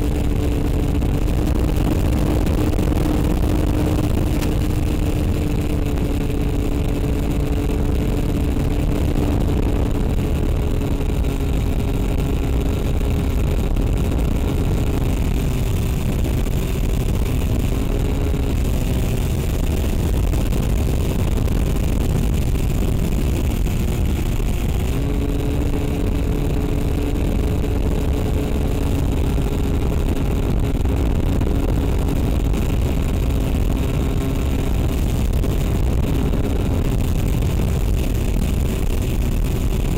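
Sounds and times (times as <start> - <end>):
rush of wind: 0.0 - 39.9
electric motor and propeller hum: 0.1 - 8.6.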